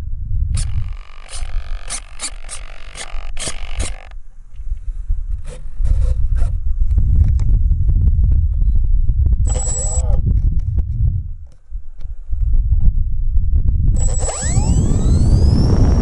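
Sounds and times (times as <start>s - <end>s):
scratchy clicks: 0.6s - 4.2s, 14.0s - 16.0s
scraping and rubbing on foam: 5.4s - 6.6s
low rumbling: 12.4s - 16.0s.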